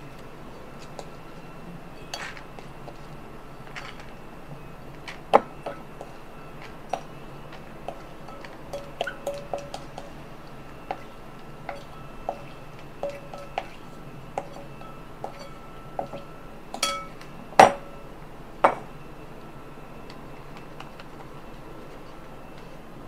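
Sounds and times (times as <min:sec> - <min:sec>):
spoon knocking bowl: 0:07.9 - 0:10.1, 0:10.9 - 0:13.8, 0:14.4 - 0:17.9.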